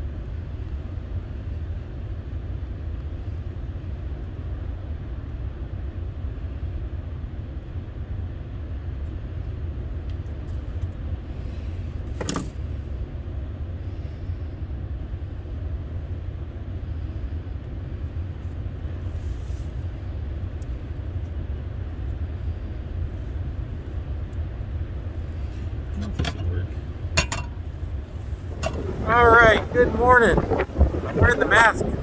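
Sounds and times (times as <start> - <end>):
wind buffeting microphone: 25.7 - 32.0.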